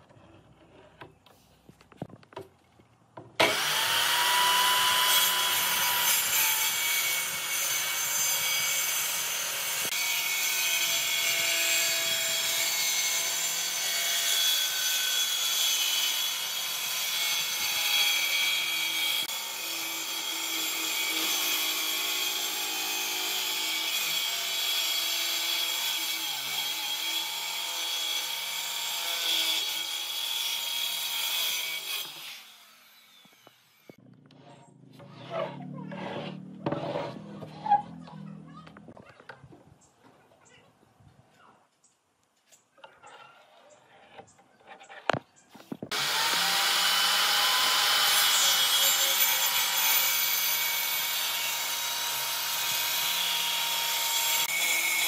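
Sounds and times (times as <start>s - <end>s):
power tool grinding wood: 3.4s - 34.4s, 45.9s - 55.0s.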